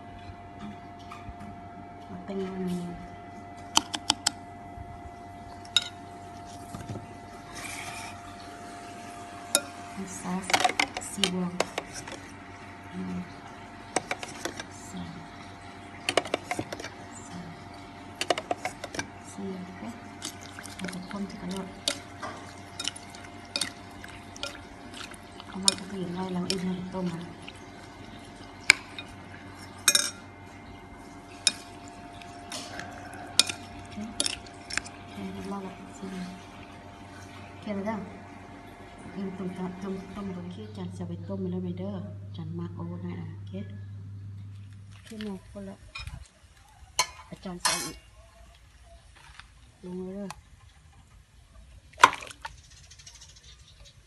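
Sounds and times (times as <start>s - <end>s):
steady electrical hum: 0.0s - 54.0s
bowl scraping: 5.5s - 12.5s, 13.3s - 37.6s, 47.0s - 48.1s
dishes clinking: 28.7s - 30.3s, 32.5s - 34.8s.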